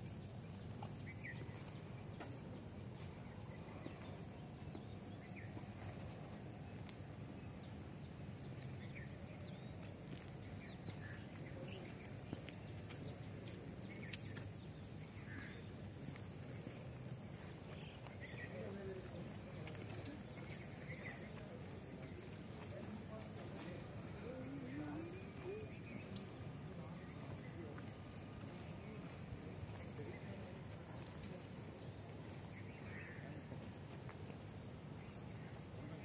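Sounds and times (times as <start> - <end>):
faint bird chirps: 8.4 - 16.8.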